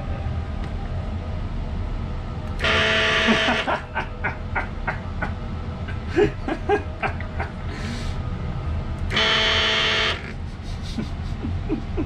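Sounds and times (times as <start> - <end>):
vibration motor buzzing: 2.6 - 3.7, 9.1 - 10.3.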